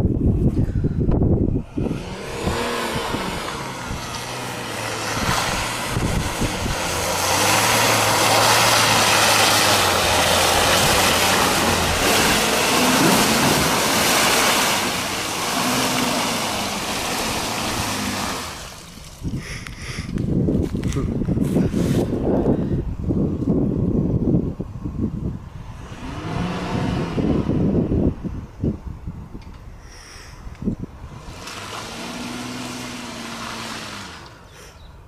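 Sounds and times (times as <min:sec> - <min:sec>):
diesel engine pulling hard: 0:00.3 - 0:23.3, 0:25.2 - 0:28.9, 0:29.7 - 0:35.0
tyres churning mud: 0:01.7 - 0:20.2, 0:31.1 - 0:34.8.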